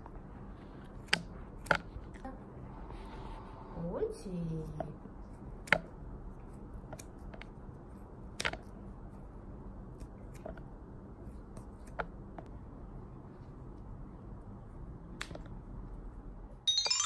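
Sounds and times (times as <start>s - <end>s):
scissors snipping: 6.8s - 7.5s.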